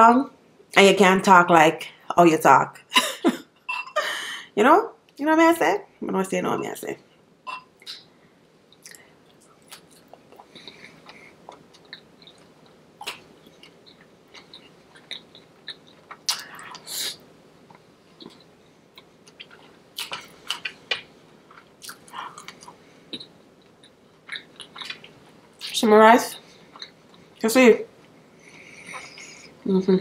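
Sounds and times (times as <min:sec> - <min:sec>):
person chewing and biting: 0:08.8 - 0:16.8, 0:21.5 - 0:25.8.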